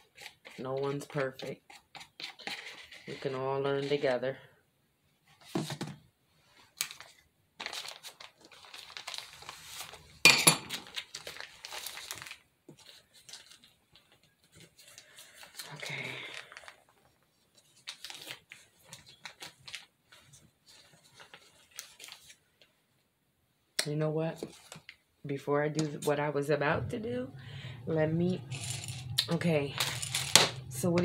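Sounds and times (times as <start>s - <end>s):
plastic bag crinkling: 6.9s - 22.4s, 28.3s - 30.9s.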